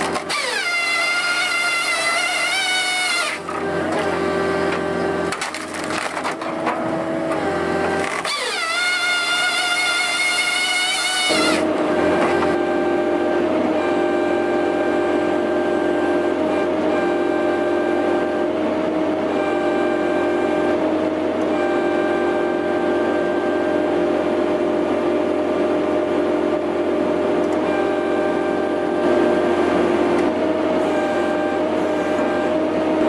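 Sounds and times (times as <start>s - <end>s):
circular saw blades whining: 0.0s - 5.3s, 6.4s - 18.6s
wood splintering and crackling: 0.0s - 7.1s, 7.8s - 12.5s
machine hum: 0.0s - 33.0s.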